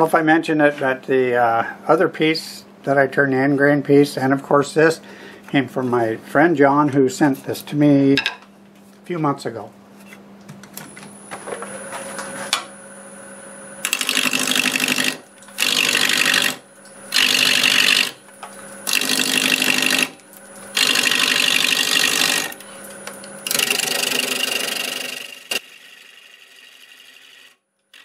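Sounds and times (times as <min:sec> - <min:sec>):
lathe humming: 0:11.1 - 0:28.0
gouge cutting spinning wood: 0:13.8 - 0:22.8, 0:23.4 - 0:28.0.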